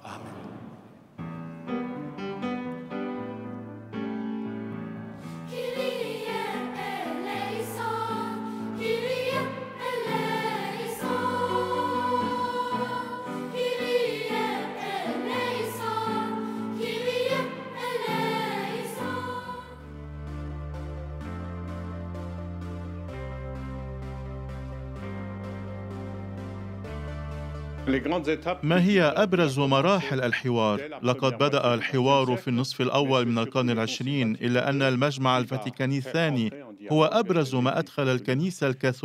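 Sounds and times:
instrumental accompaniment chords: 1.1s - 29.1s
girls' choir singing: 5.4s - 19.9s.

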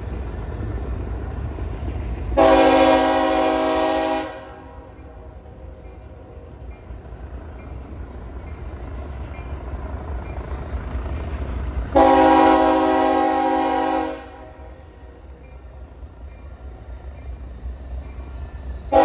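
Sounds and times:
diesel locomotive rumble: 0.0s - 19.0s
locomotive horn blast: 2.4s - 5.0s, 12.0s - 14.8s.

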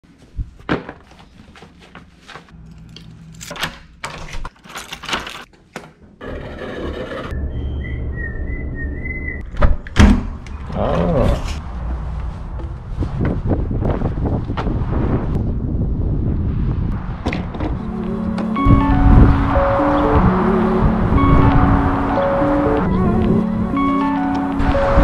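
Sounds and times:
rustling and handling noises: 0.0s - 3.6s
metal door thunks: 9.5s - 10.4s.

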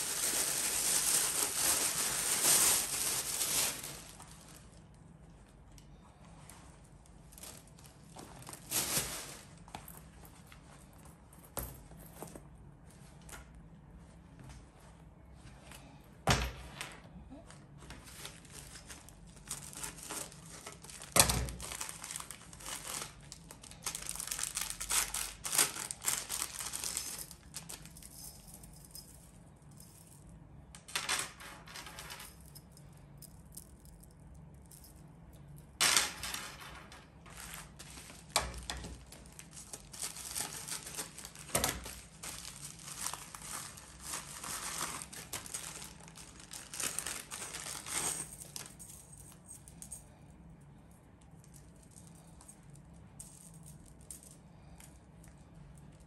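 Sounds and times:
plastic packaging crinkling: 0.0s - 5.1s, 7.1s - 9.7s, 18.1s - 27.9s, 37.2s - 48.8s
chain straps clinking and rattling: 18.6s - 30.2s, 37.3s - 50.2s.

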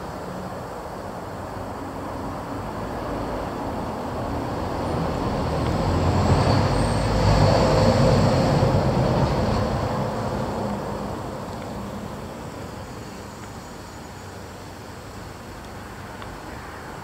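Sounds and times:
passing vehicle rumble: 1.8s - 13.2s.

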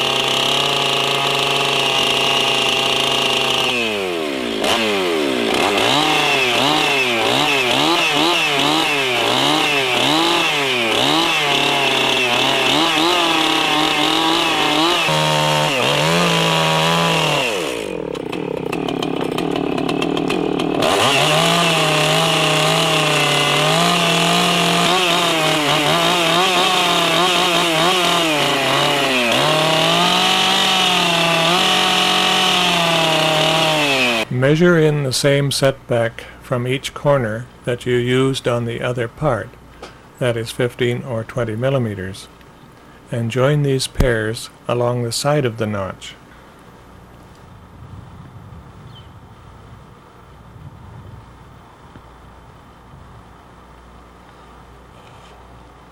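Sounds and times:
chainsaw cutting log: 0.0s - 35.1s, 43.2s - 44.8s.

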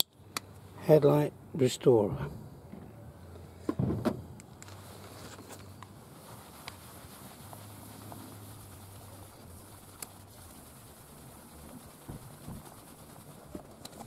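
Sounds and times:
cloth scrubbing plastic lens: 4.6s - 14.0s.

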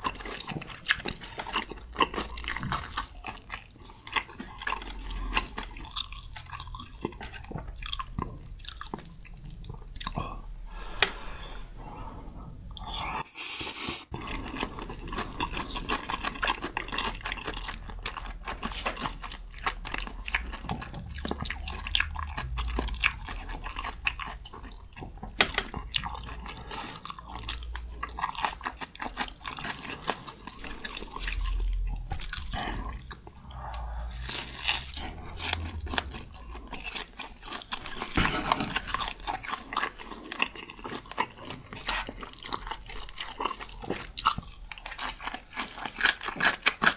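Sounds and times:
wet sticky chewing: 14.2s - 46.9s.

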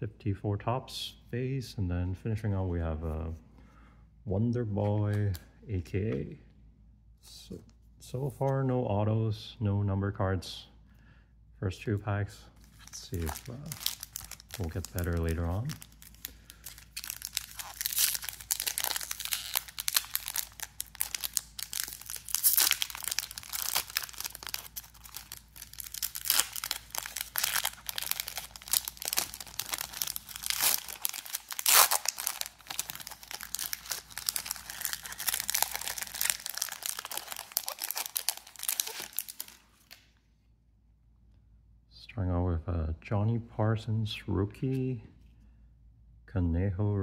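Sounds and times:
foil wrapper crinkling and tearing: 12.7s - 40.0s.

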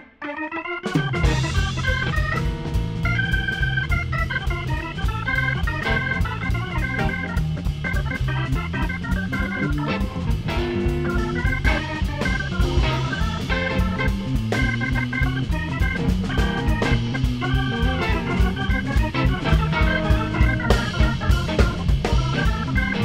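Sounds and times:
electric organ melody: 0.0s - 23.0s
drum kit beat: 0.8s - 23.0s.

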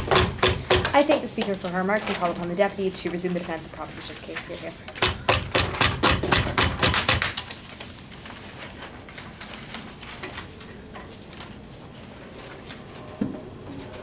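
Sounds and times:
paper rustling: 1.0s - 4.9s, 7.2s - 14.0s.

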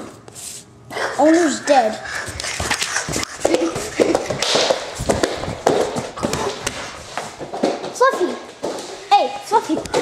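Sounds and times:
scuffling taps and thumps: 2.3s - 8.9s.

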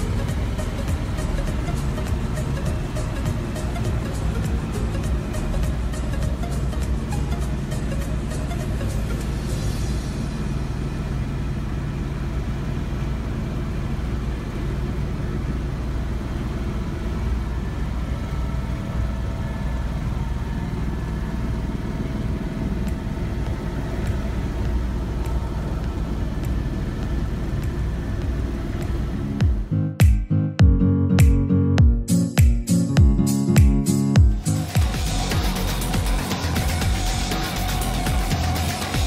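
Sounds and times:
helicopter engine and rotor rumble: 0.0s - 28.9s
faint steady whine: 0.0s - 29.8s.

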